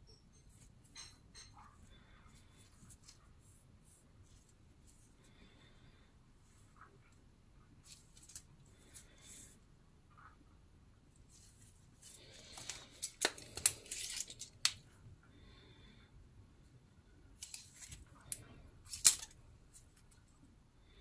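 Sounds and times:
rustling handling noise: 0:01.6 - 0:05.2, 0:07.7 - 0:09.6, 0:11.2 - 0:14.9, 0:17.4 - 0:20.3.

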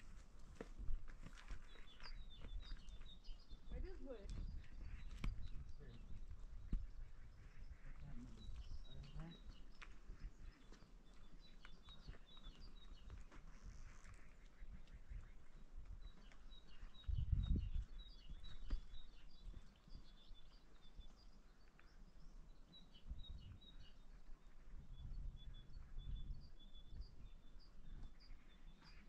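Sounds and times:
small birds chirping: 0:00.0 - 0:29.0
wind on microphone: 0:02.1 - 0:10.7, 0:12.7 - 0:20.0, 0:23.0 - 0:28.4.

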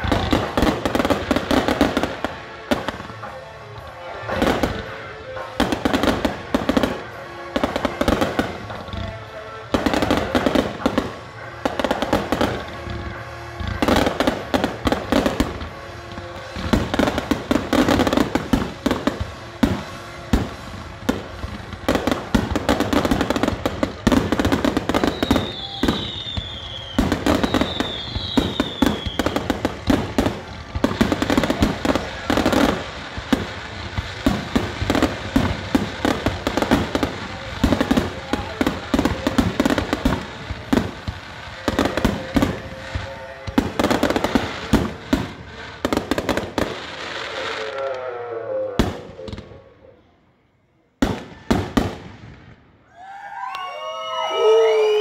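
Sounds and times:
fireworks bursting and crackling: 0:00.0 - 0:48.2, 0:48.8 - 0:49.9, 0:51.0 - 0:53.1
music playing: 0:00.0 - 0:49.4
falling firework whistles: 0:22.2 - 0:29.9.

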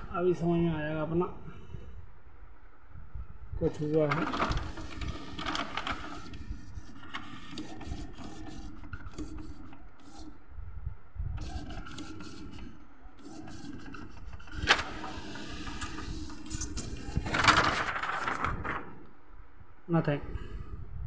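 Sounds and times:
inkjet printer printing: 0:04.0 - 0:10.4, 0:11.4 - 0:19.0
sharp printer click: 0:11.4 - 0:17.8.

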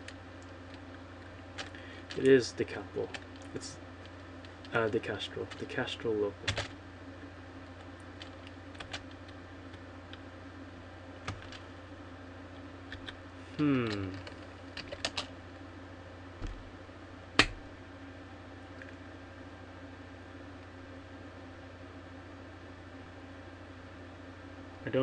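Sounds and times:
low background hum: 0:00.0 - 0:25.0
person humming: 0:13.5 - 0:14.3.

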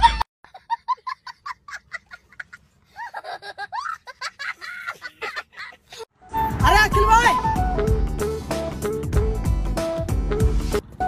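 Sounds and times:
person giggling and laughing: 0:00.0 - 0:06.1.

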